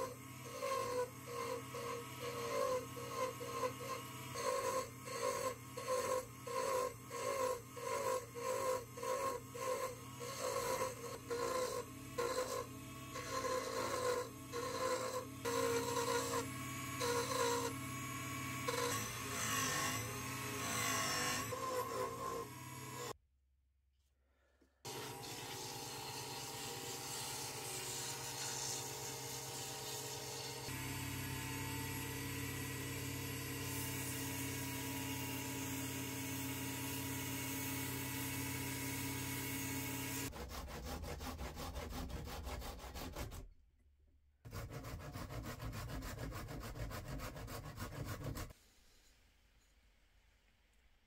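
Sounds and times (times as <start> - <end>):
wood scraping strokes: 44.5 - 49.3.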